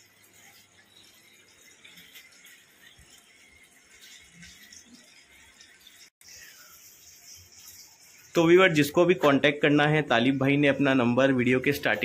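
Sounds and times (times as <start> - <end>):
steady hiss: 6.2 - 11.2.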